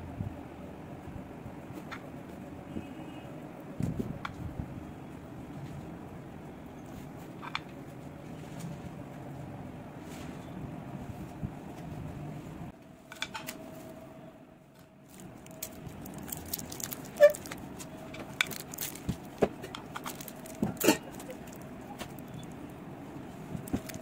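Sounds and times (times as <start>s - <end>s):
plastic wrapper crinkling: 15.0s - 22.7s, 23.5s - 24.0s.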